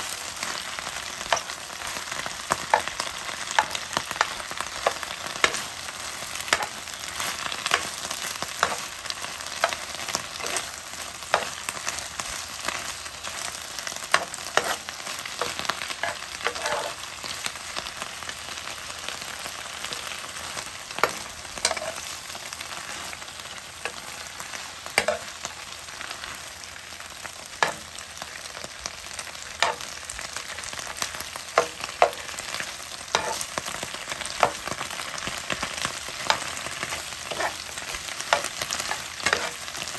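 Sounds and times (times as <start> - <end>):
greens sizzling in a frying pan: 0.0 - 39.9
metal utensil scraping a pan: 8.6 - 11.7, 14.1 - 17.1, 21.0 - 22.1, 25.0 - 25.3, 27.6 - 28.0, 29.6 - 30.0, 31.6 - 33.6, 36.2 - 39.8.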